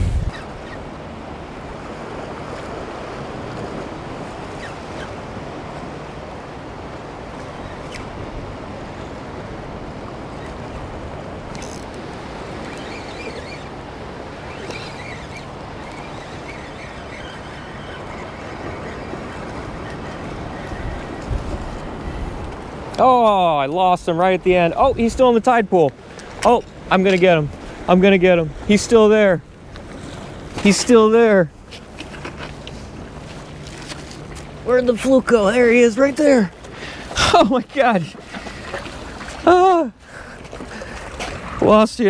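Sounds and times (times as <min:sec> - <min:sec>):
fishing reel cranking: 0:11.5 - 0:18.0
small waves washing against rocks: 0:29.9 - 0:41.8.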